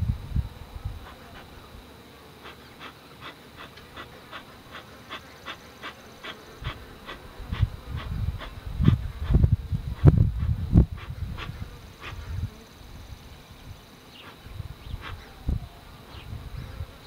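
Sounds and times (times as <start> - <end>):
rapid panting: 2.4 - 12.3.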